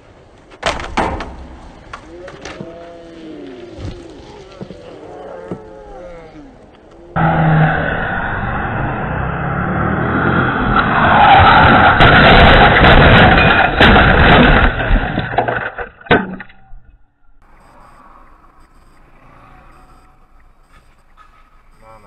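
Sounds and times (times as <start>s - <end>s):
car engine and tyre noise: 6.6s - 13.8s.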